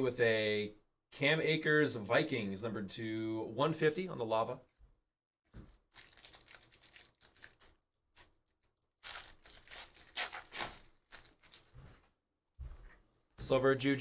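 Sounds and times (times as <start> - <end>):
foil wrapper tearing and crinkling: 5.7 - 8.4, 9.0 - 11.8.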